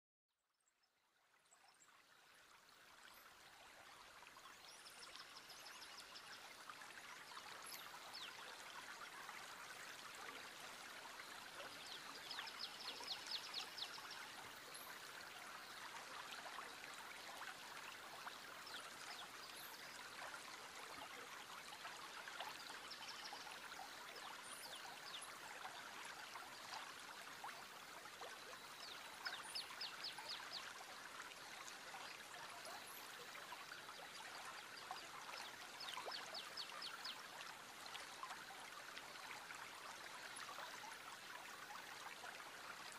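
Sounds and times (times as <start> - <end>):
stream running: 1.2 - 42.9.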